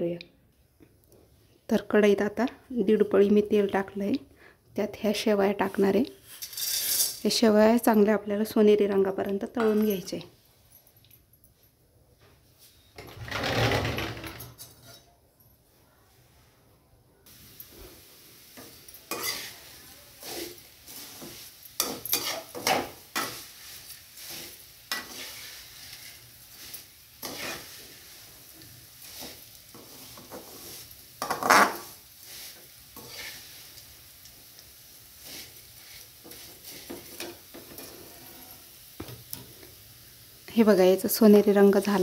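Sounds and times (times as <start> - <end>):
faint sizzle: 1.2 - 10.6, 15.6 - 42.0
metal spoon scraping a metal pan: 6.2 - 7.4, 18.6 - 28.3, 29.0 - 33.8, 35.2 - 38.6.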